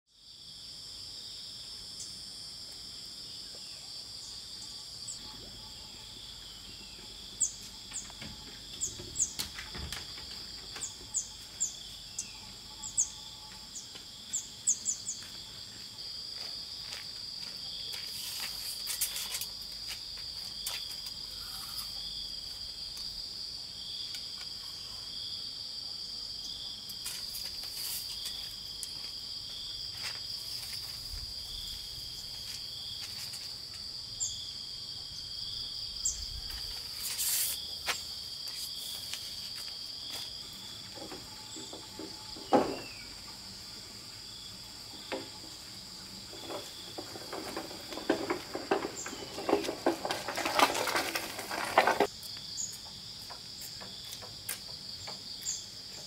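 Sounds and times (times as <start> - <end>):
high-pitched insect chorus: 0.1 - 56.0
bird chirping: 10.8 - 15.2.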